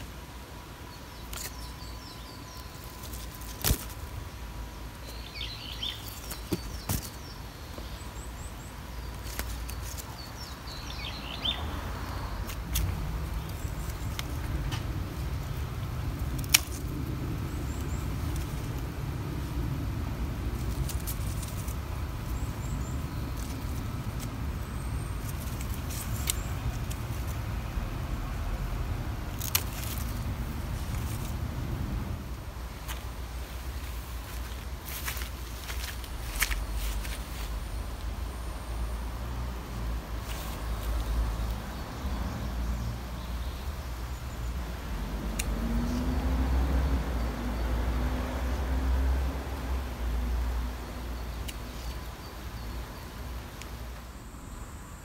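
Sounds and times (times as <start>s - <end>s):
small birds chirping: 0.0s - 55.0s
low rumble: 12.9s - 32.8s.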